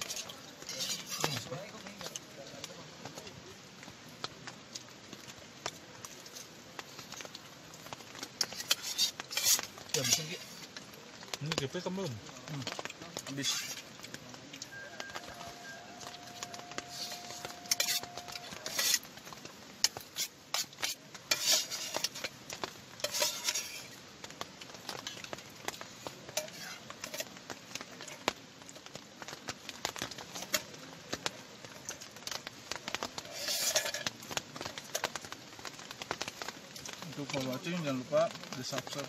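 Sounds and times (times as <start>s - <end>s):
spoon scraping bowl: 0.0s - 1.5s, 8.4s - 10.7s, 15.2s - 19.1s, 19.8s - 22.3s, 23.0s - 23.9s, 33.2s - 34.1s.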